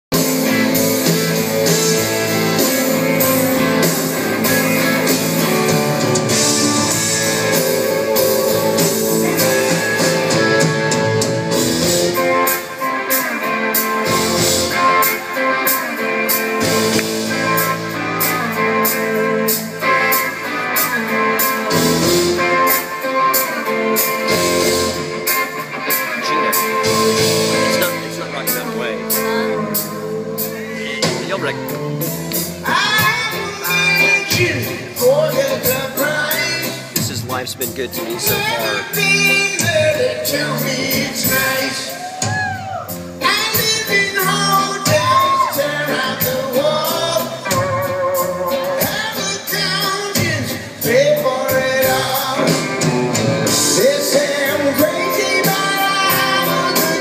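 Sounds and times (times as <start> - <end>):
live rock band playing: 0.1 - 57.0.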